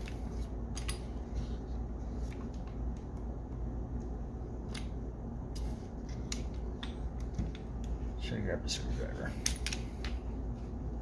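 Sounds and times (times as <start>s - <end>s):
steady low hum: 0.0s - 11.0s
clicks of metal parts fitted together: 9.4s - 10.2s.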